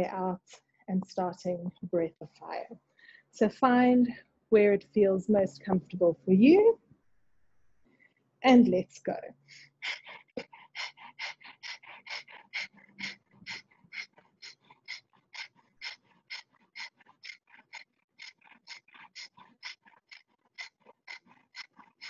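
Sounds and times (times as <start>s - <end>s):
woman breathing forcefully through nose: 9.5s - 22.0s.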